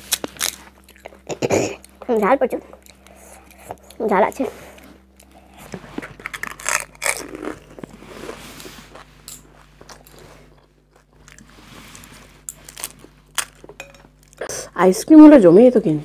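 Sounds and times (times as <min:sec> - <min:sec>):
wet crunching and chewing: 0:00.0 - 0:14.5
crisp shell cracking when bitten: 0:06.0 - 0:07.9, 0:12.6 - 0:13.8.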